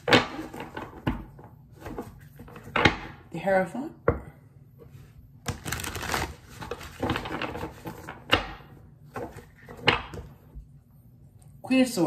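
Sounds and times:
cards riffling: 5.5 - 7.2
cards slapping: 5.5 - 8.6.

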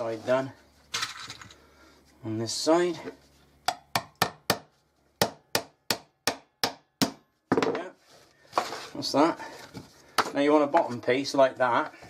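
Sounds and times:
hammer striking nail into wood: 3.7 - 7.3.

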